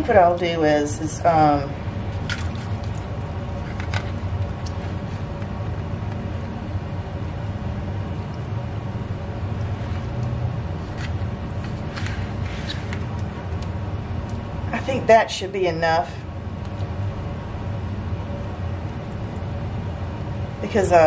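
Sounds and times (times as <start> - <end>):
low background rumble: 0.0 - 21.0
spoon scraping wet food: 2.2 - 6.2, 9.6 - 13.8.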